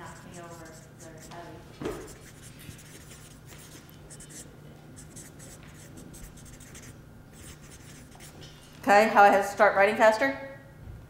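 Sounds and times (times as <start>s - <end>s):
marker scratching on paper: 0.0s - 8.5s.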